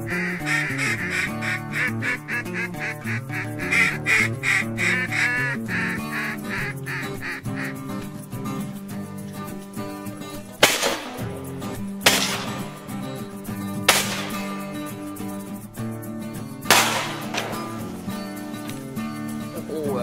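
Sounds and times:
duck quacking rapidly: 0.0s - 8.1s
background music: 0.0s - 20.0s.

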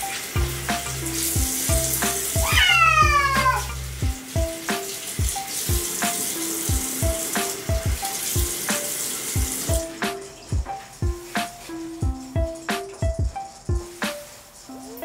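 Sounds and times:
background music with steady beat: 0.0s - 15.0s
water running: 0.0s - 15.0s.

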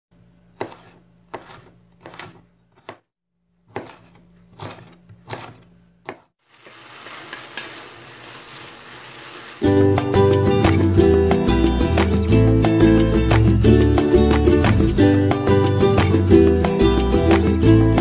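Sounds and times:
knife chopping on wooden board: 0.5s - 6.3s
vegetables sizzling in a pan: 6.4s - 9.8s.

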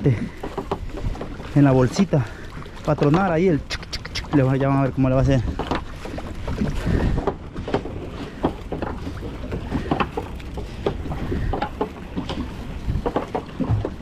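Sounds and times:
sea: 0.0s - 14.0s
water drips and splashes: 0.0s - 14.0s
wind: 0.0s - 14.0s
net knocking on deck: 13.2s - 14.0s.

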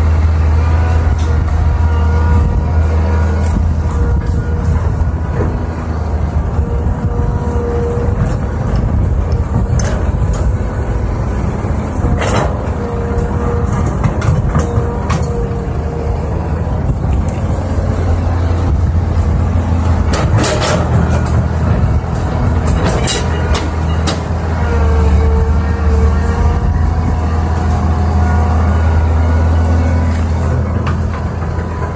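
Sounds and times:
excavator diesel engine running: 0.0s - 31.9s
hydraulic whine: 0.0s - 31.9s.

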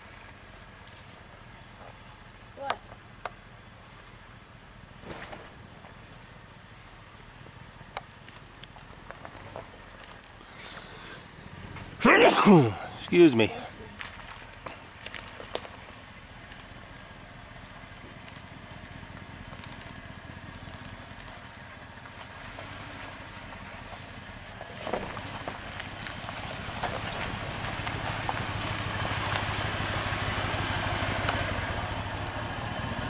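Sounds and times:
car engine running at low speed: 0.0s - 33.0s
tyres crunching over gravel: 7.2s - 32.2s.

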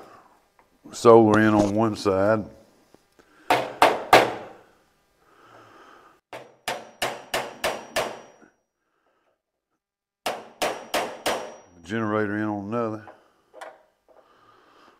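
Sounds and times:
hammer blows ringing: 6.3s - 8.5s, 10.2s - 11.9s.

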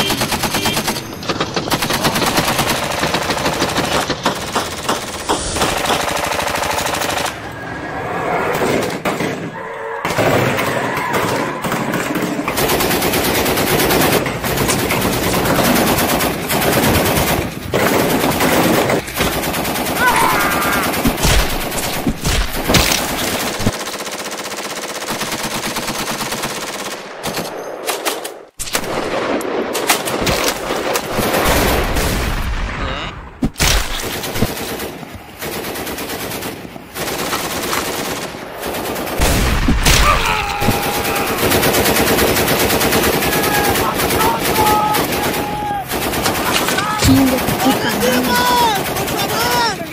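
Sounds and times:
automatic gunfire: 0.0s - 7.4s.

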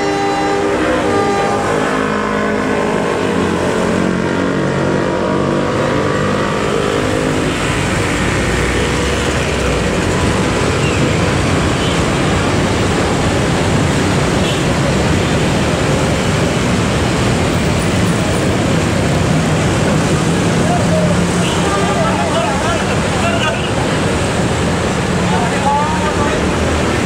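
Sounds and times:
freight train rolling: 0.0s - 4.0s
motorcycles and cars passing: 0.0s - 27.0s.

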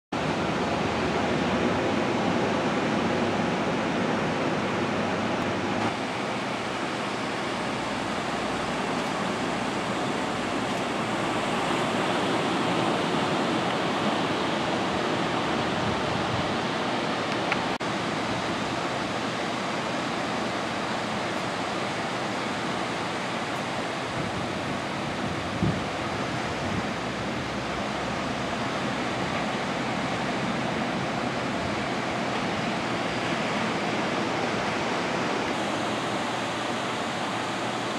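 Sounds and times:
small waves breaking on beach: 0.2s - 37.9s.

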